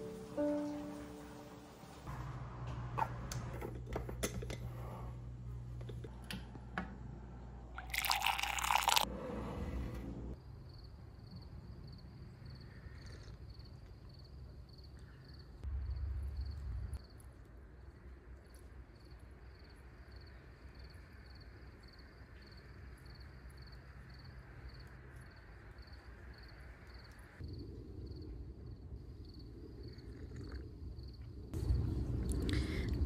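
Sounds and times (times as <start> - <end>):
cricket chirping: 10.3 - 31.6.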